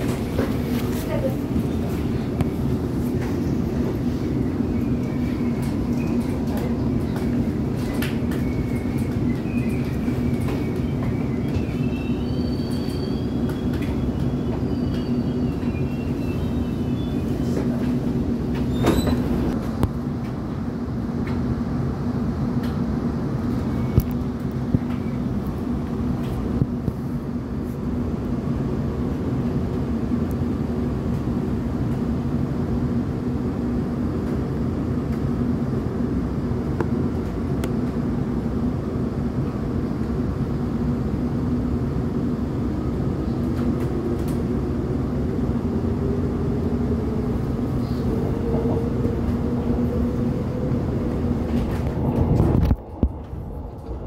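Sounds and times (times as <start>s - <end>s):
wheel squeal: 7.8s - 17.6s, 18.6s - 19.5s.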